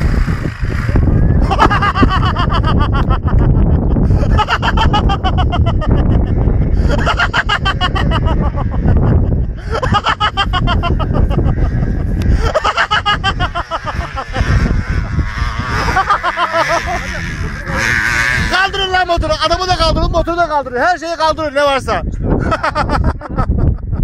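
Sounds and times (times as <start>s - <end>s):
steady low rumble: 0.0s - 21.1s
man laughing hard: 1.1s - 18.5s, 22.2s - 24.0s.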